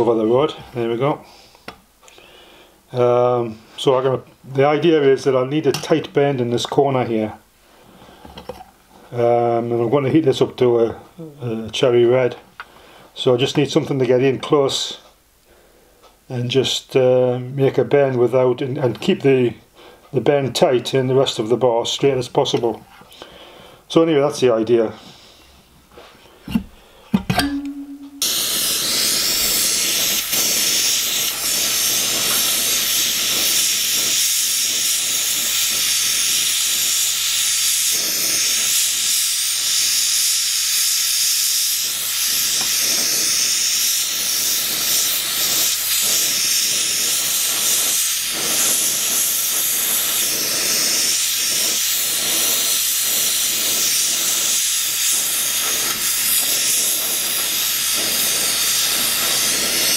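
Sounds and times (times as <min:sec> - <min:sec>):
gas torch hissing: 0:28.2 - 0:59.9.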